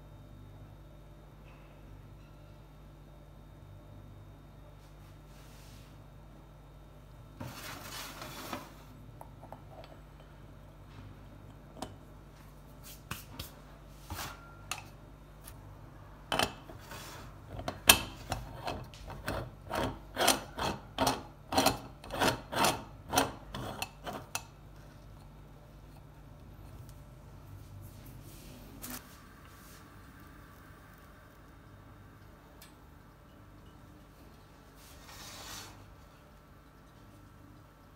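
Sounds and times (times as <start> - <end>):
metal threads grating: 18.3 - 24.5.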